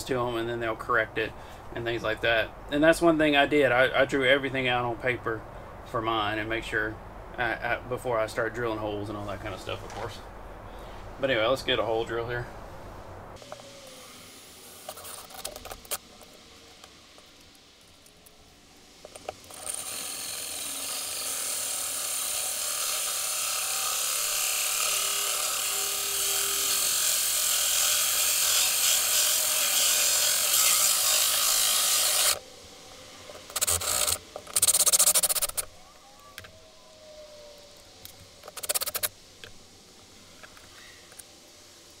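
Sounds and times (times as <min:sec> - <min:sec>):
hole saw grinding through wall: 0:19.4 - 0:32.4
short drilling bursts: 0:19.5 - 0:32.4, 0:33.5 - 0:35.6.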